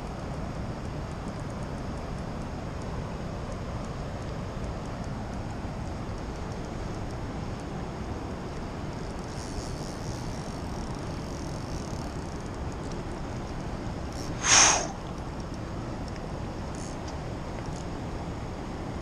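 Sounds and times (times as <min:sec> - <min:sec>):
river current rushing: 0:14.1 - 0:15.2
sharp swish: 0:14.4 - 0:15.0.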